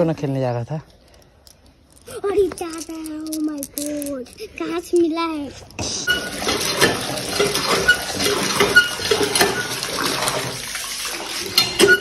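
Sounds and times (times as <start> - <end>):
glass marbles clinking: 1.2 - 4.4
water pouring into plastic bucket: 6.1 - 12.0.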